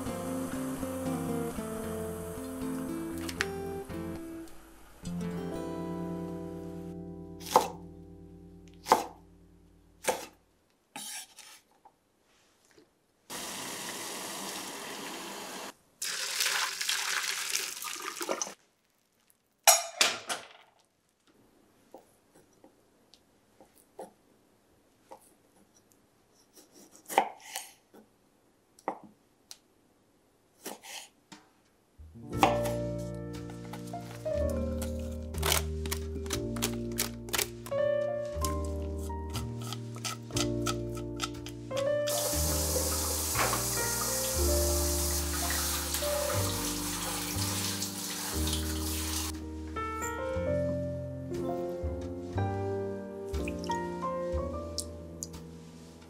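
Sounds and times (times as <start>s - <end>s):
acoustic guitar music: 0.0s - 8.7s
knife chopping on wooden board: 7.4s - 7.8s, 32.4s - 32.8s
water splashing in a strainer: 16.0s - 18.6s
tap running: 42.1s - 44.0s.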